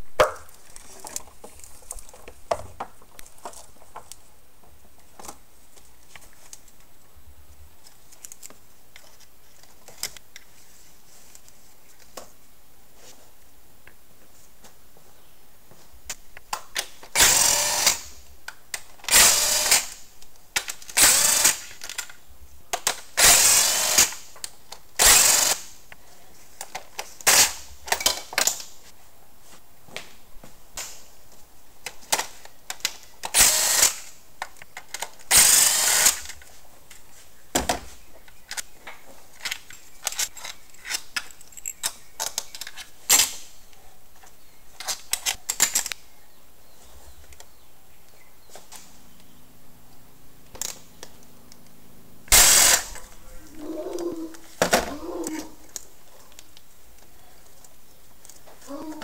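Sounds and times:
power driver spinning bolts: 52.3 - 53.1.

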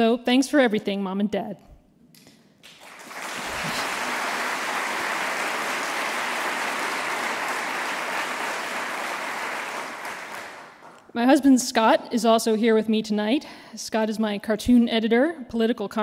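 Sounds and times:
audience applauding: 2.6 - 11.0.

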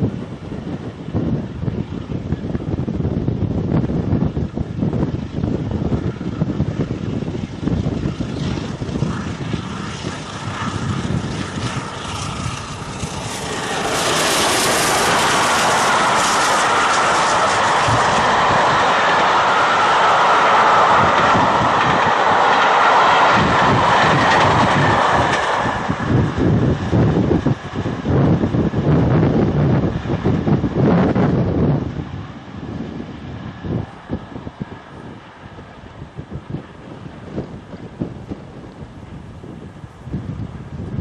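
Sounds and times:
wind buffeting the microphone: 0.0 - 41.0
train wheels clattering on rails: 8.1 - 26.9.

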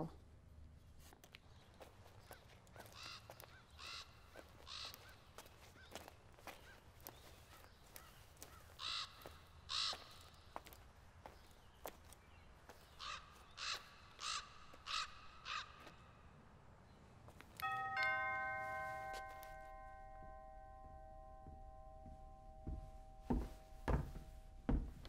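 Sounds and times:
bird calling: 2.2 - 10.5, 12.7 - 16.1
two-note doorbell chime: 17.6 - 25.0
dull thumps: 21.4 - 25.0.

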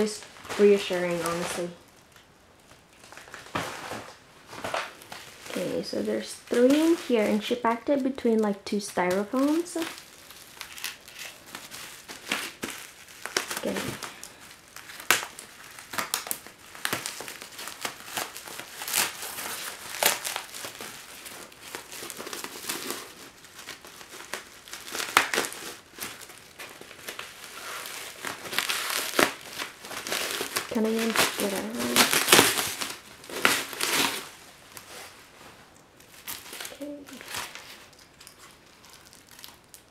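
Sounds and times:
bubble wrap crinkling: 0.0 - 39.9.

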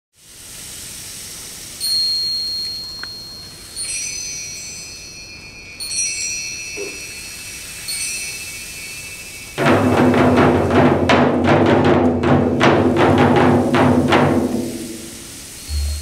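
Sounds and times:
metal chimes ringing: 1.8 - 10.0.

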